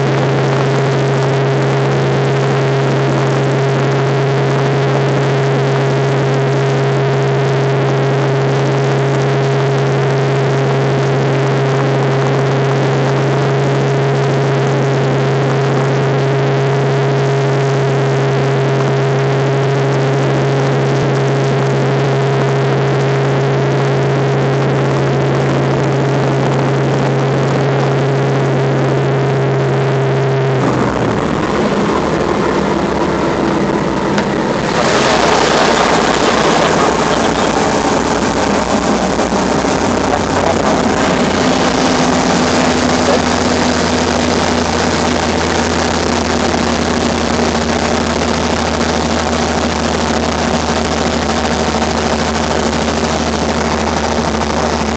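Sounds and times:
helicopter engine and rotors drone: 0:00.0 - 0:54.9.

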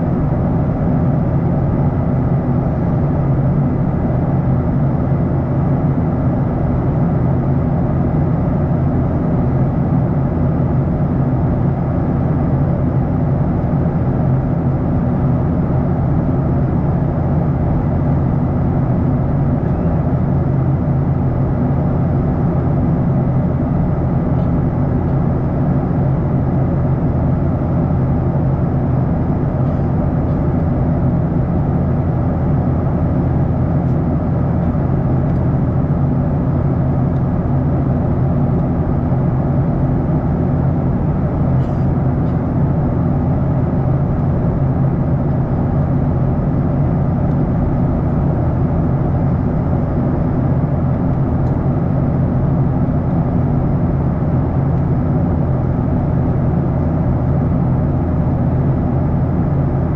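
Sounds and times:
airplane cabin engine drone: 0:00.0 - 0:59.9.

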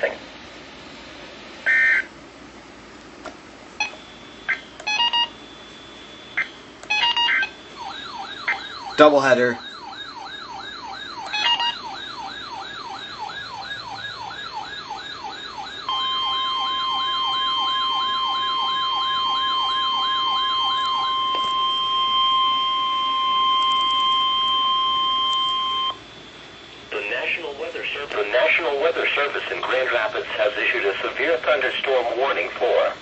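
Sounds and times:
steady alarm tone: 0:01.6 - 0:02.1, 0:03.8 - 0:32.4
warbling alert siren: 0:01.7 - 0:02.1, 0:03.8 - 0:26.4.

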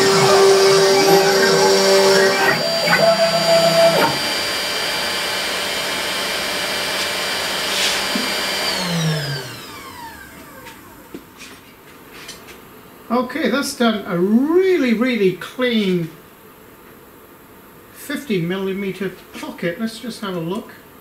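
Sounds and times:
router spindle motor whining: 0:00.0 - 0:11.2.

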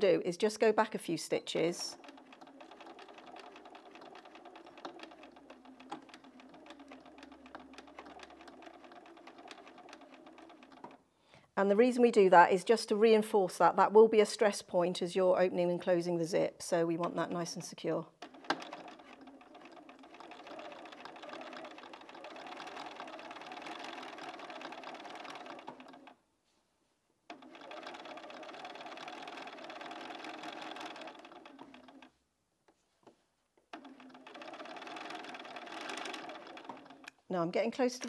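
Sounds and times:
sewing machine stitching: 0:01.2 - 0:11.0, 0:16.8 - 0:26.2, 0:27.3 - 0:32.1, 0:33.7 - 0:38.0.

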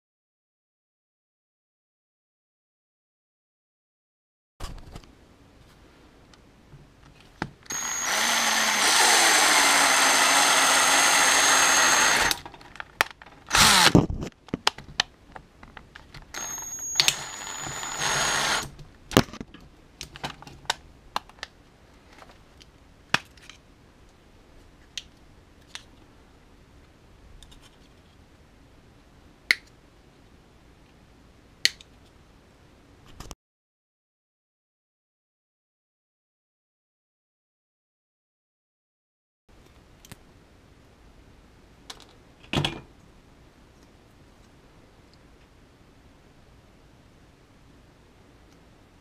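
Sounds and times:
drill boring into plastic: 0:07.7 - 0:12.4, 0:13.5 - 0:14.1, 0:16.3 - 0:18.7.

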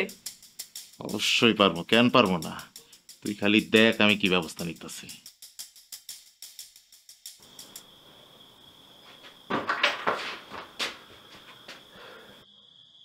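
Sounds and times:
rapid ticking: 0:00.0 - 0:07.9
cricket trilling: 0:00.0 - 0:13.0.

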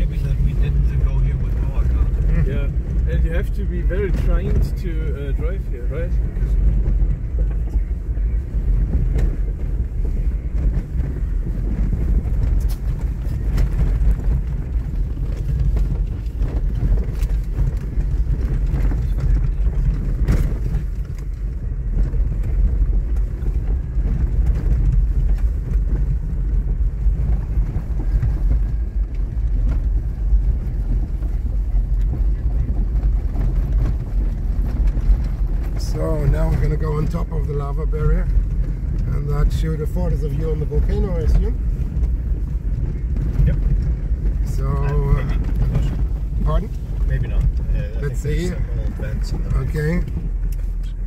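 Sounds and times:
vehicle rumbling over gravel: 0:00.0 - 0:51.0.

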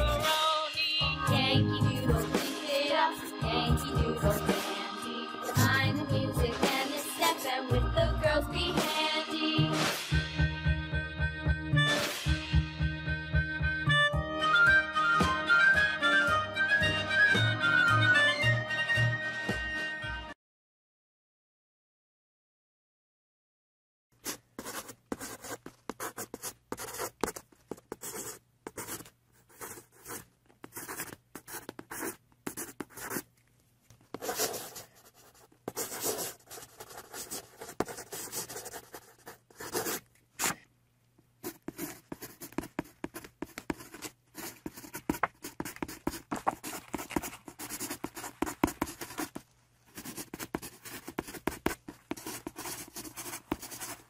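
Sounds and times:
marker scratching on paper: 0:24.2 - 0:33.2, 0:34.1 - 0:40.6, 0:41.4 - 0:49.4, 0:50.0 - 0:54.0.

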